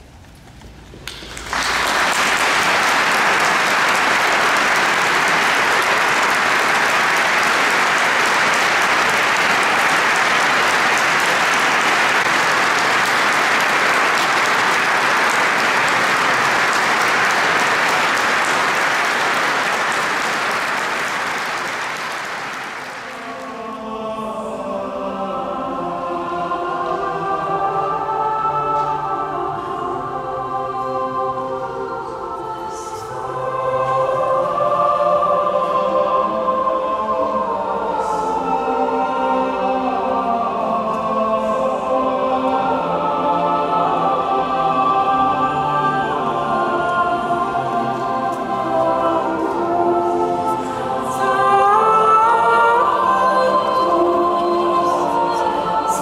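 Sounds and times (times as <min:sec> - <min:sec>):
audience applauding: 0:01.0 - 0:23.6
choir singing: 0:01.6 - 0:56.0.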